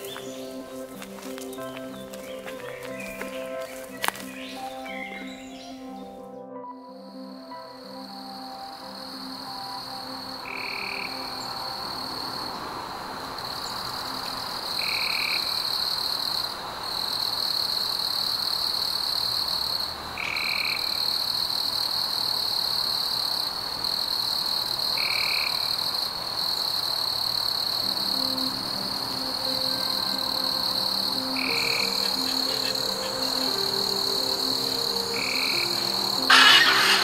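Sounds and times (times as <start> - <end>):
soft background music: 0.0 - 16.2, 27.7 - 37.0
frogs trilling: 0.0 - 37.0
short low frog call: 34.9 - 37.0.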